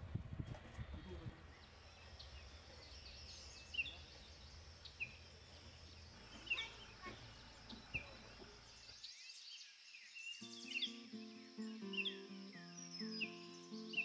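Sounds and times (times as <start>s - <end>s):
small birds chirping: 0.3s - 14.0s
faint bird twittering: 0.4s - 14.0s.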